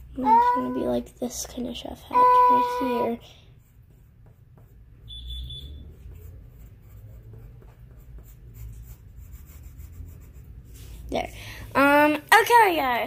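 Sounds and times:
pencil scratching on paper: 0:00.0 - 0:05.1, 0:05.8 - 0:11.2
high beep tone: 0:05.1 - 0:05.8.

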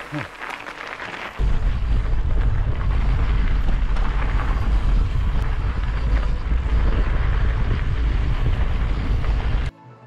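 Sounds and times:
wind buffeting microphone: 0:01.4 - 0:09.7.

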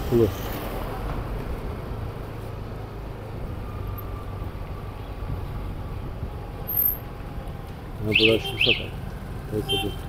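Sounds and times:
road noise: 0:00.0 - 0:10.0.

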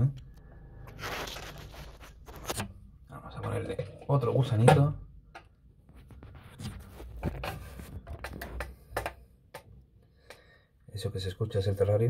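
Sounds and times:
handling clicks and taps: 0:07.3 - 0:10.5.

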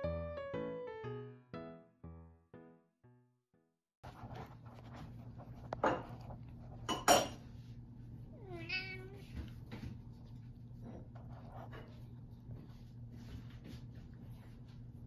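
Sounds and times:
cat meowing: 0:08.4 - 0:09.3.

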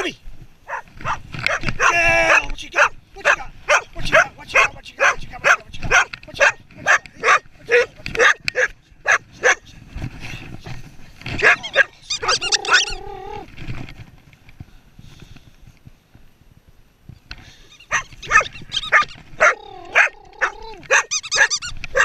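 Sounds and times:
dog barking: 0:00.7 - 0:09.6, 0:17.9 - 0:22.0
dog whining: 0:11.4 - 0:13.5, 0:17.8 - 0:22.0.

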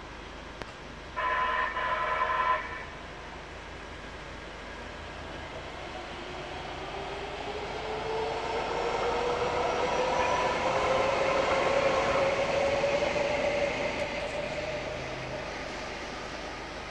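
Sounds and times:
light-rail train passing: 0:00.0 - 0:16.9
faint rising whine: 0:03.8 - 0:16.9.

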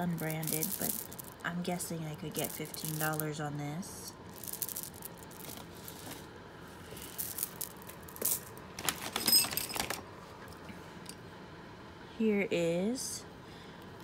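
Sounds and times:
metal jewelry clinking: 0:00.0 - 0:03.4, 0:04.3 - 0:06.2, 0:07.0 - 0:10.0.

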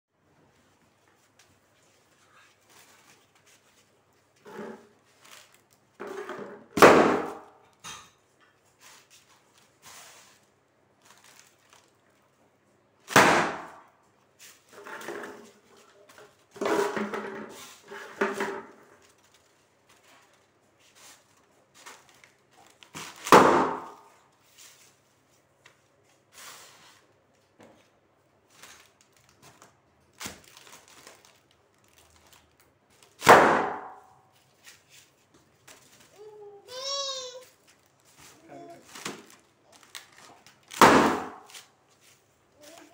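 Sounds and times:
foil crackling and rustling: 0:00.7 - 0:06.0, 0:08.7 - 0:12.4, 0:28.4 - 0:33.2, 0:37.6 - 0:42.9
foil balloons bursting: 0:06.8 - 0:07.5, 0:13.0 - 0:13.8, 0:22.6 - 0:24.1, 0:33.0 - 0:34.1, 0:38.9 - 0:41.7.

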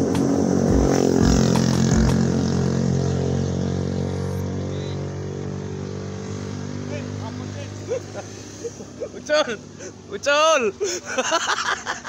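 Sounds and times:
low thumps: 0:00.0 - 0:02.6
vehicle engine running: 0:00.0 - 0:05.2.

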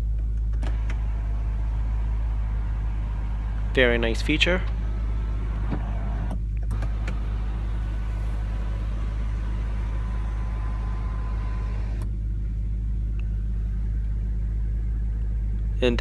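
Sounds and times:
steady low hum: 0:00.0 - 0:16.0
motor stopping click: 0:00.6 - 0:12.1
sunshade motor whine: 0:00.6 - 0:15.5.

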